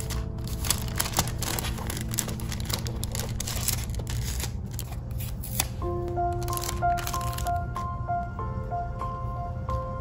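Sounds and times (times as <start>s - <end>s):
paper sleeve crinkling: 0.0s - 7.6s.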